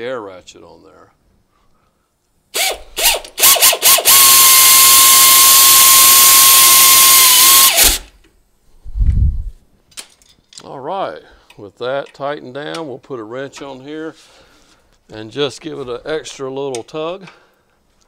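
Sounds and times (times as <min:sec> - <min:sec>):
air ratchet whine: 0:02.6 - 0:08.1.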